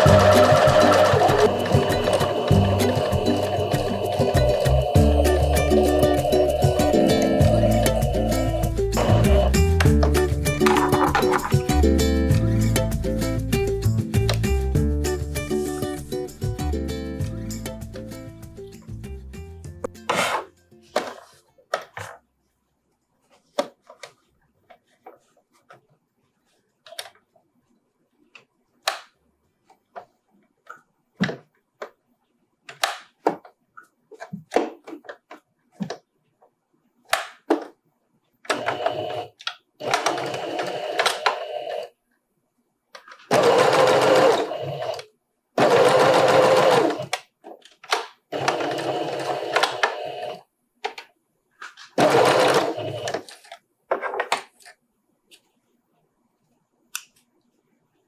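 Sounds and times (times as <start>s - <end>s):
sewing machine stitching: 0.0s - 4.9s, 38.5s - 41.9s, 43.3s - 47.1s, 48.3s - 50.4s, 52.0s - 53.2s.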